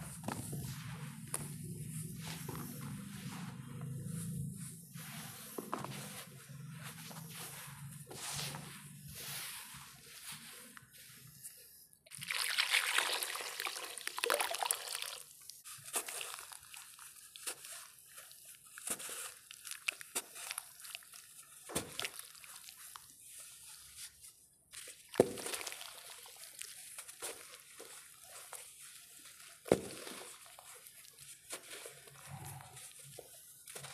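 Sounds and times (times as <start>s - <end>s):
grains pouring into water: 12.1s - 15.3s
crunches trickles and drips: 12.1s - 16.8s, 25.1s - 26.8s.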